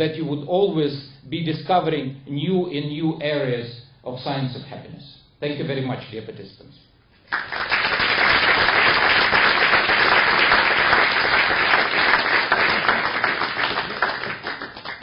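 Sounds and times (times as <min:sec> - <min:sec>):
audience clapping: 0:07.2 - 0:15.0.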